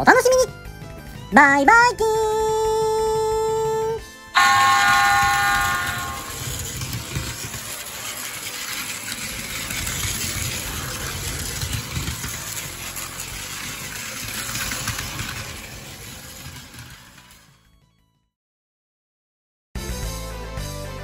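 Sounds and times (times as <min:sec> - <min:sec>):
toy train motors whirring: 0:04.4 - 0:17.7
wheels rattling on plastic track: 0:04.4 - 0:17.8.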